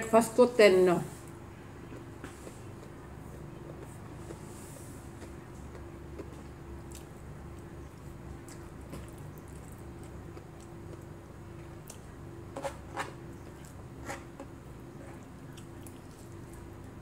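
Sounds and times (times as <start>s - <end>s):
faint steady hum: 0.0s - 17.0s
chewing and wet squishes: 1.8s - 12.2s, 14.8s - 17.0s.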